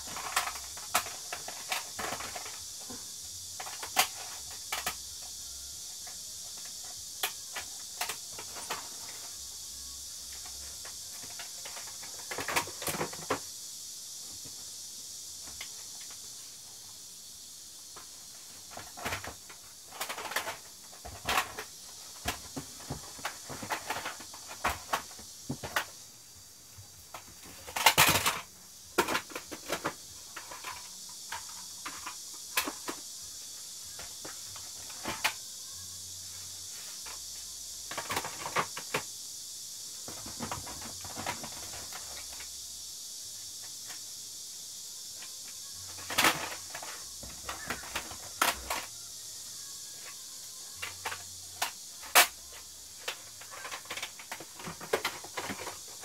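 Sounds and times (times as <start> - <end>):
plastic cases clicking and clattering: 0.0 - 3.0, 11.2 - 13.4, 18.7 - 26.0, 27.1 - 33.0, 45.9 - 48.9, 53.0 - 55.9
high hiss: 0.0 - 56.0.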